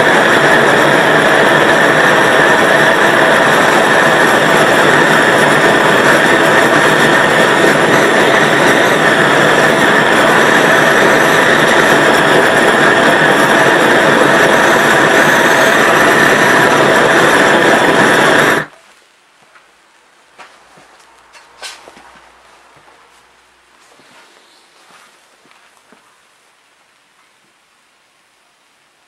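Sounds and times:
gas torch hissing: 0:00.0 - 0:18.7.

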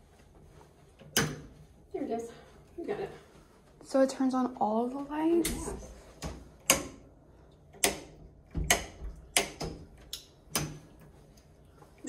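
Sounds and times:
light switch clicks: 0:06.6 - 0:06.9, 0:07.8 - 0:08.1, 0:08.7 - 0:10.8.

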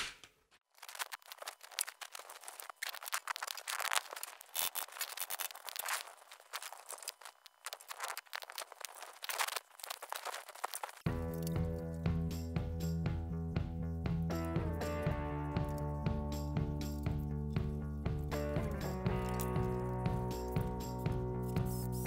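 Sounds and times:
plastic pipe scraping and crackling: 0:00.6 - 0:11.6
music: 0:11.1 - 0:22.0.

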